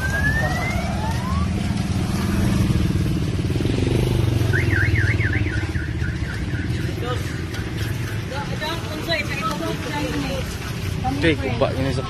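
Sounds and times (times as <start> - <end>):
warbling electronic alarm: 0.0 - 1.6
motorcycle tricycle engine passing: 0.0 - 12.0
traffic drone: 0.0 - 12.0.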